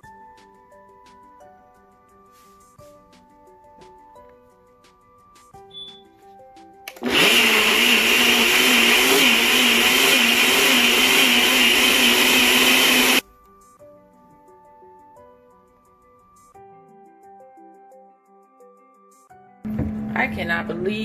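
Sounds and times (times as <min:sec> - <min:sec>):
blender motor whirring: 0:06.9 - 0:13.2.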